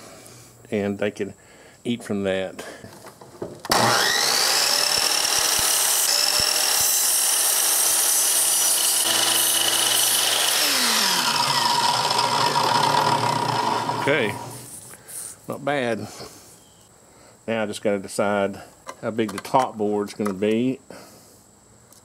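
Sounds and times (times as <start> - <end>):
miter saw motor whining: 3.7 - 14.7
saw blade cutting plastic: 3.7 - 14.7.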